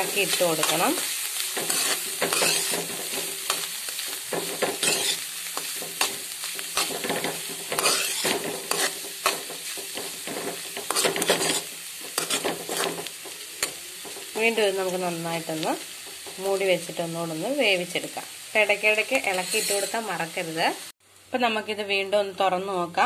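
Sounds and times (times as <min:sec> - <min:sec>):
food sizzling in pan: 0:00.0 - 0:21.9
metal spoon scraping pan: 0:01.5 - 0:14.3, 0:19.2 - 0:20.1.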